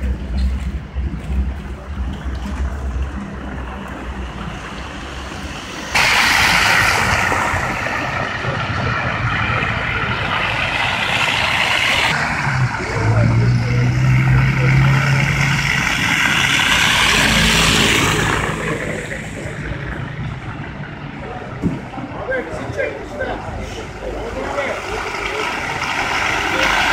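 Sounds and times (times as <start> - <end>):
passing vehicle engine hum: 0.0 - 21.5
tyres hissing through slush: 5.1 - 12.2.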